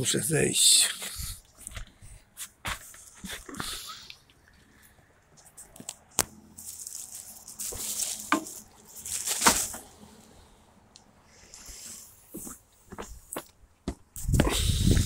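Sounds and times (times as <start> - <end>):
rustling and scraping: 1.0 - 3.9, 4.8 - 10.4
footsteps scuffing on felt roof: 1.6 - 3.4, 12.3 - 14.2.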